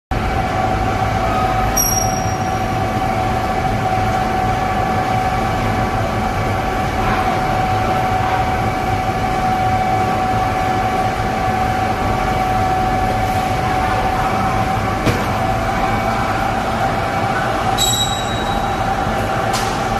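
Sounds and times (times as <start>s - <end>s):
constant machine whine: 0.1s - 19.9s
conveyor belt machine noise: 0.1s - 19.9s.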